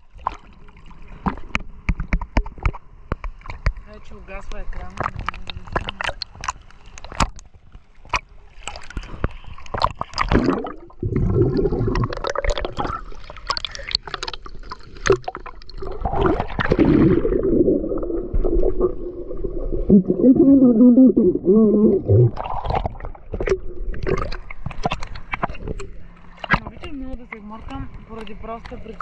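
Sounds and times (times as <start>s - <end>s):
sea water splashing: 0.0s - 29.0s
muffled underwater sound: 3.7s - 6.6s, 15.8s - 29.0s.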